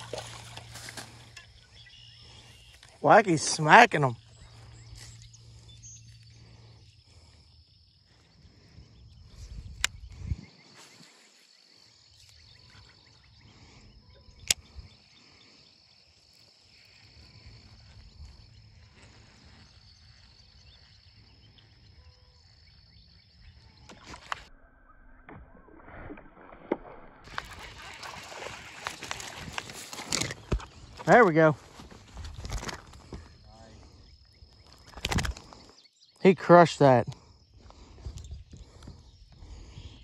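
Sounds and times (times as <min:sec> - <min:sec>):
sharp clicks: 0:14.4 - 0:14.8.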